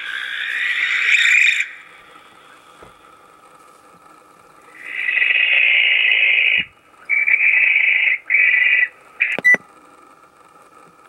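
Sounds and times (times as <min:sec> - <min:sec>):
owl screeching: 0:00.0 - 0:02.6, 0:04.8 - 0:09.4.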